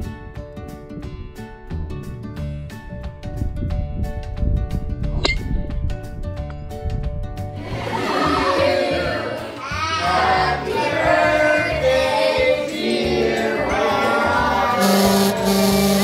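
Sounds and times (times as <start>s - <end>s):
music: 0.0s - 16.0s
voices singing together: 7.6s - 16.0s.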